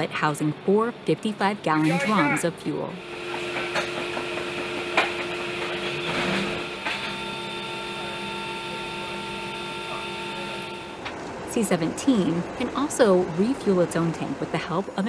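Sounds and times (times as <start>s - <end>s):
aircraft machinery hum: 0.0s - 15.0s
high whining tone: 1.8s - 11.1s.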